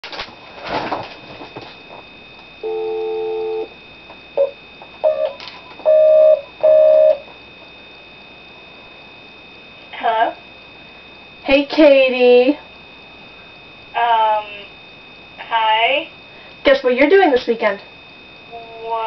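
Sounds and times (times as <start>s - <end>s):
longer phone beeps: 2.6s - 3.7s, 4.4s - 7.2s
phone dial tone: 2.6s - 3.7s.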